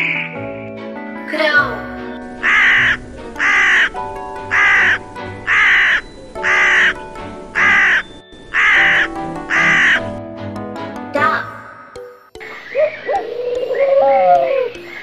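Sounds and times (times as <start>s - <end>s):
background music: 0.0s - 15.0s
crow cawing harshly: 2.4s - 7.0s, 7.6s - 8.0s, 8.6s - 10.0s.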